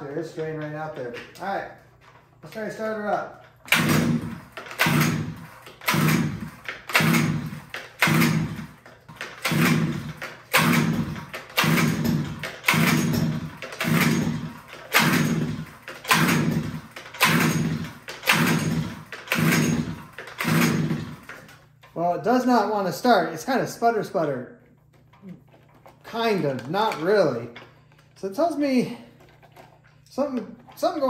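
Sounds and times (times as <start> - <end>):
recoil starter cord rasping: 0.4 - 22.0
engine cranking without starting: 2.0 - 22.0.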